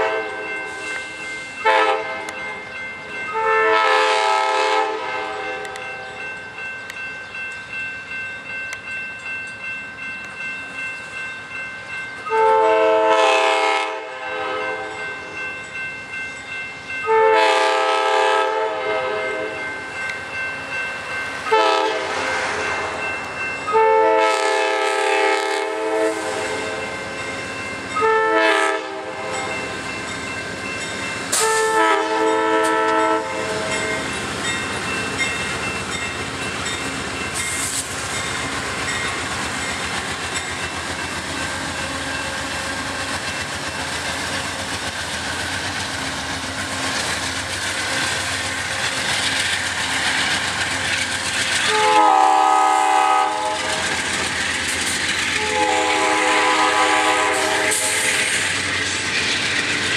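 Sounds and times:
train air horn blasts: 0.0s - 0.8s, 1.6s - 2.4s, 3.3s - 6.2s, 12.3s - 15.0s, 17.0s - 19.6s, 21.5s - 22.6s, 23.7s - 26.8s, 28.0s - 29.5s, 31.3s - 33.8s, 51.6s - 53.9s, 55.4s - 58.2s
train wheels clattering on rails: 19.3s - 59.9s.

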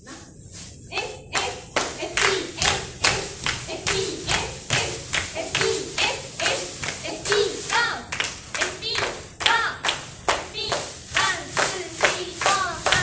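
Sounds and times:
sharp hand claps: 8.1s - 10.9s.

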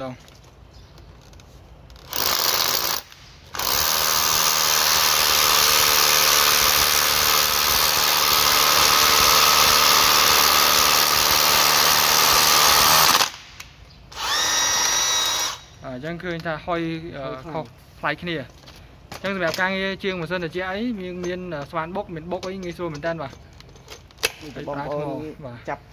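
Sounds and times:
rotary hammer drilling into concrete: 2.0s - 13.4s, 14.2s - 15.7s.

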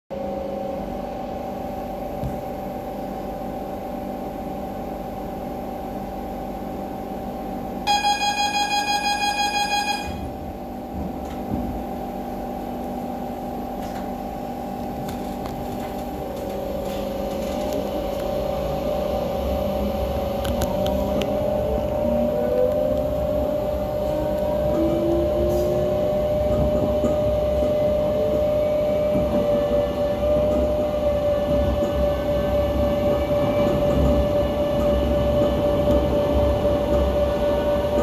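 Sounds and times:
train equipment hum: 0.1s - 38.0s
rapid warning beeps: 7.9s - 10.3s
train doors shutting knock: 7.9s - 12.0s.

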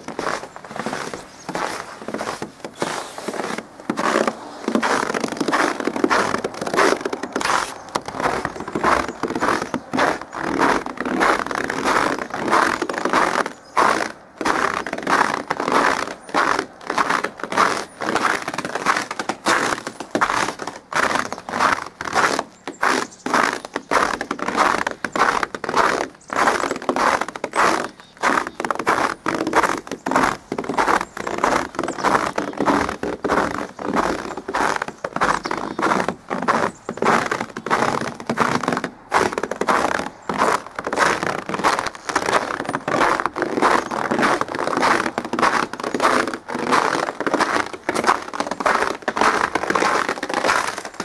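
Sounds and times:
footsteps crunching in snow: 0.0s - 51.0s.

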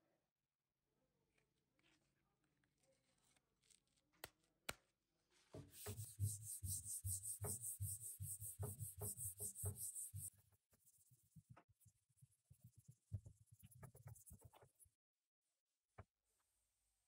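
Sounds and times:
sandpaper rubbing on wood: 5.7s - 10.3s.

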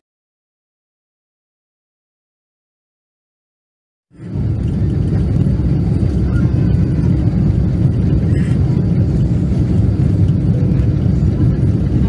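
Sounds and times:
jet engine low rumble: 4.1s - 12.0s.

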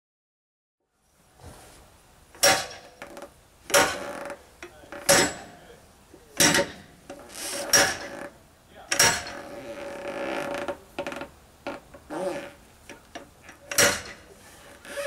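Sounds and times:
steel bar striking tire rim: 2.4s - 3.1s, 3.7s - 4.2s, 5.0s - 5.6s, 6.4s - 8.2s, 8.9s - 9.4s, 12.9s - 14.3s.

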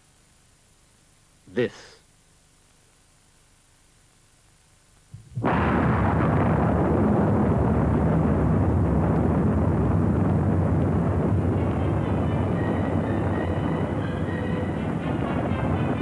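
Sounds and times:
explosion blast: 5.2s - 16.0s
deep sustained rumble: 5.4s - 16.0s.

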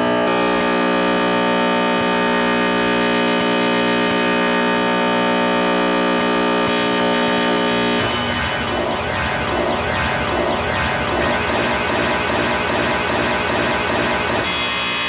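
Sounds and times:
dense piano chord: 7.8s - 14.4s.

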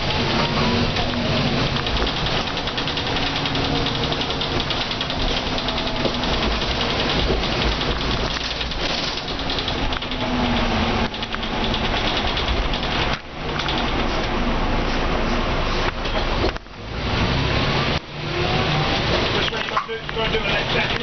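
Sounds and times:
fast rattle: 0.0s - 14.2s
bus diesel engine running: 0.0s - 21.0s.

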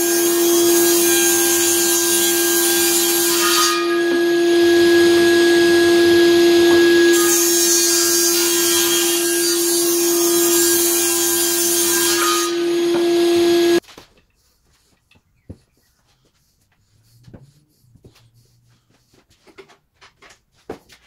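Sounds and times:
table saw ripping wood: 0.0s - 13.9s.

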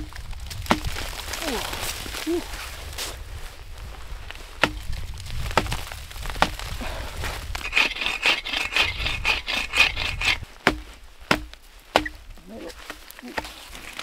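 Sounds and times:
sharp knocks on wood: 4.6s - 4.8s, 10.6s - 12.2s
hand saw cutting branches: 7.5s - 14.0s.

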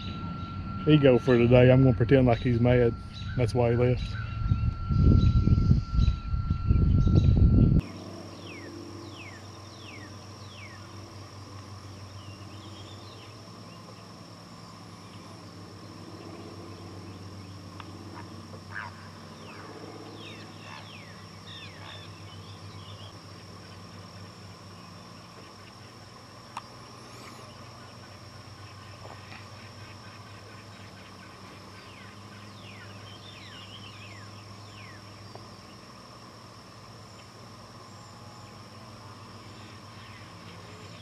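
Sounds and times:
birds whistling: 0.0s - 11.0s, 11.9s - 25.5s, 26.9s - 35.8s
faint low hum: 0.0s - 41.0s
high-pitched whine: 0.0s - 41.0s.

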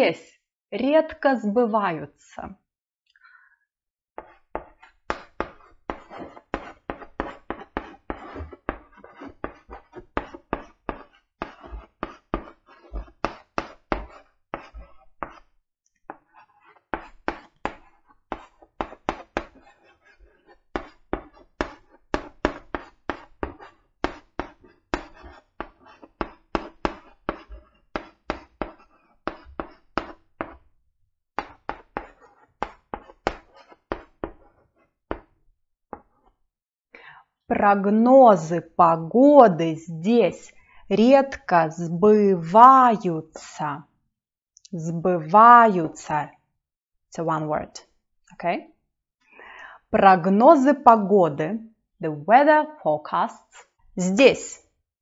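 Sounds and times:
chalk writing on a blackboard: 4.2s - 30.7s, 31.4s - 35.3s, 53.4s - 53.8s.

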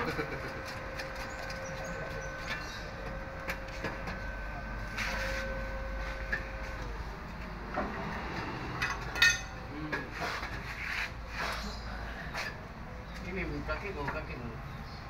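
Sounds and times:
metal tools clinking: 8.8s - 9.6s
ringing metallic clank: 8.8s - 9.6s.

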